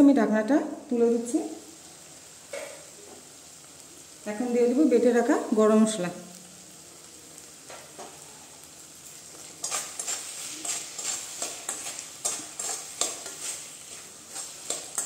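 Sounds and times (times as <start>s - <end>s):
spatula scraping metal pan: 9.5s - 15.0s.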